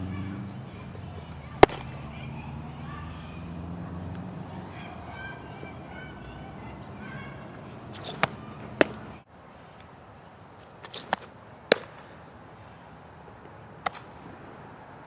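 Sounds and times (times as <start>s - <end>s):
outdoor background noise: 0.0s - 15.0s
softball smacking into glove: 1.6s - 2.1s, 7.9s - 9.1s, 10.8s - 12.1s, 13.8s - 14.1s.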